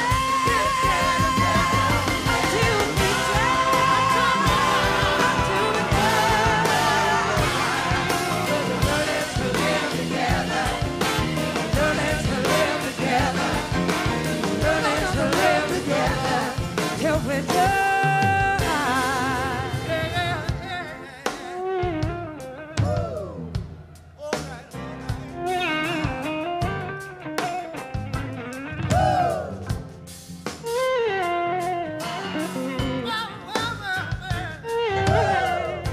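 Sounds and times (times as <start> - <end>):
person singing: 0.0 - 10.6, 14.6 - 21.9
live rock blues band: 0.0 - 35.9.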